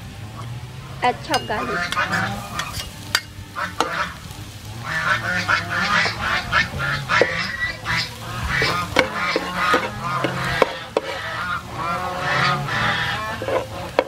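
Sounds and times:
garlic sizzling in hot oil: 0.0 - 14.0
fowl calling: 0.3 - 14.0
metal spatula knocking on pan: 1.2 - 2.1, 8.6 - 11.2.

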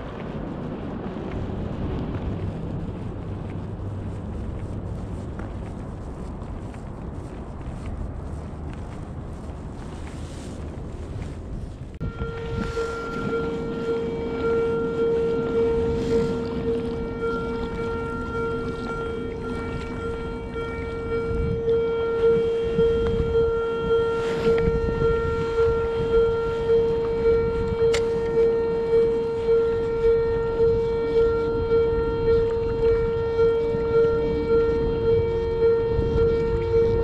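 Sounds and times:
wind noise on microphone: 0.0 - 37.0
mechanical drone: 11.5 - 37.0.

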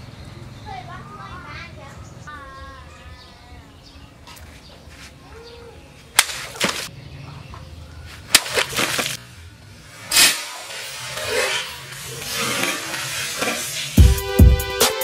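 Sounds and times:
sharp cracks: 6.2 - 6.9, 8.3 - 9.2, 9.9 - 14.0
sword slicing plastic bottles: 6.2 - 6.9, 8.3 - 9.2, 10.0 - 14.0
water splashing: 8.3 - 9.2.

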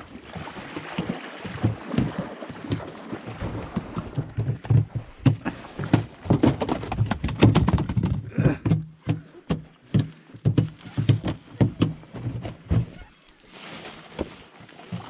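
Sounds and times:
fish knocking on boat floor: 3.6 - 13.0.

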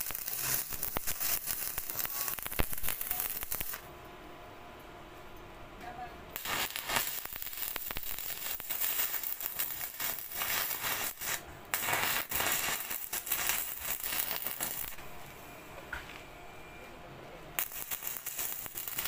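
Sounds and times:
welding arc crackling and hissing: 0.0 - 3.9, 6.3 - 15.4, 17.6 - 19.0.

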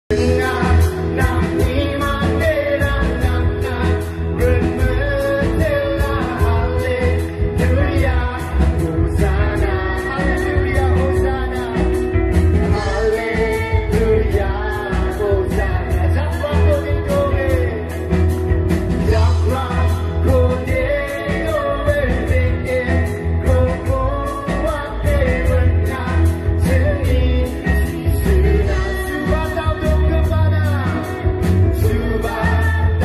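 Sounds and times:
gospel band playing: 0.1 - 33.0
man singing: 0.1 - 33.0
steady drum beat: 0.1 - 33.0
woman singing along: 12.7 - 17.7.

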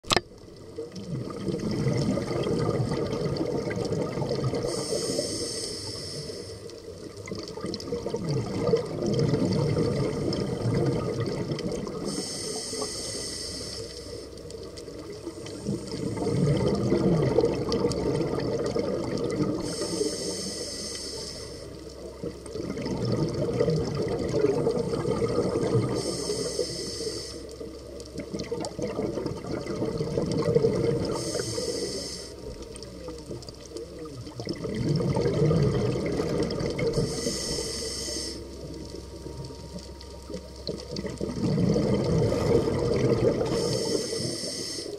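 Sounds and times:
exhaled bubbles gurgling: 0.0 - 44.9
regulator hissing inhale: 4.6 - 6.9, 12.0 - 14.5, 19.6 - 21.8, 25.8 - 27.7, 31.0 - 32.6, 36.9 - 38.8, 43.4 - 44.9.

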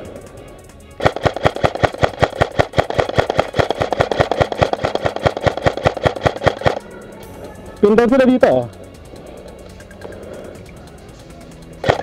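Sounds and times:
airsoft rifle full-auto burst: 1.0 - 6.8.

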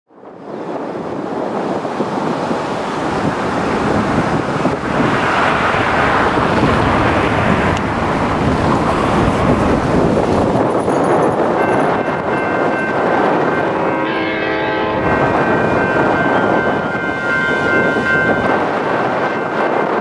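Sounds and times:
wind buffeting microphone: 0.1 - 20.0
car passing: 2.6 - 10.9.

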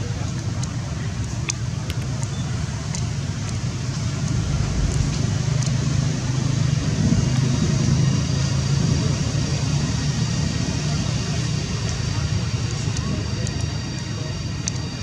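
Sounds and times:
vehicle engine humming: 0.0 - 15.0
faint ticks: 0.2 - 5.8, 12.7 - 14.9.

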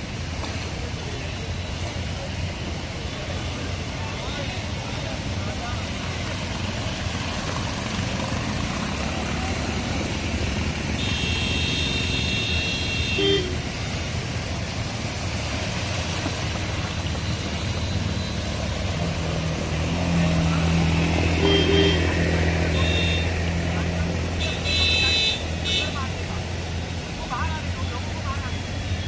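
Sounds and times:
water washing: 0.0 - 11.2, 13.4 - 29.0
motorcycle engines humming: 0.0 - 29.0
vehicle horn: 11.0 - 13.7, 21.4 - 23.4, 24.4 - 26.1.

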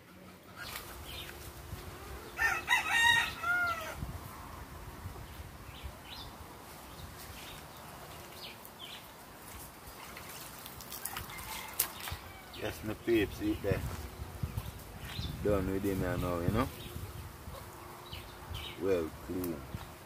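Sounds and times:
rooster crowing: 2.2 - 4.0, 11.0 - 12.6.

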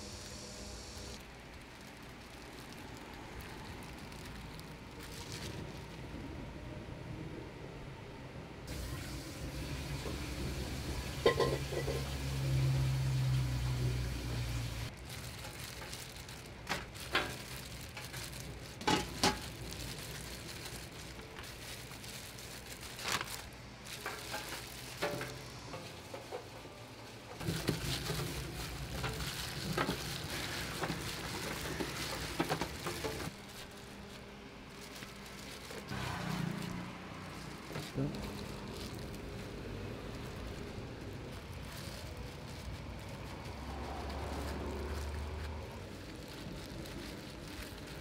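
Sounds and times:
steady hiss: 0.0 - 3.8
hands mixing rice in steel bowl: 27.4 - 48.0.

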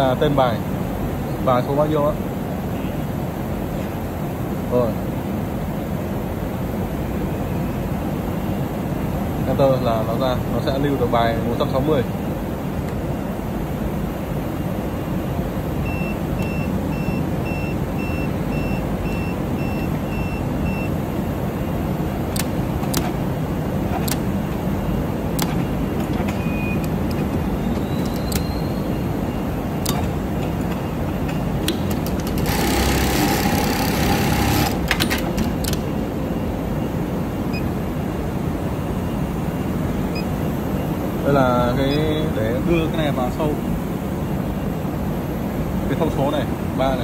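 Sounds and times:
workshop machinery noise: 0.0 - 47.0
short high beeps: 25.6 - 26.9, 27.6 - 29.9.

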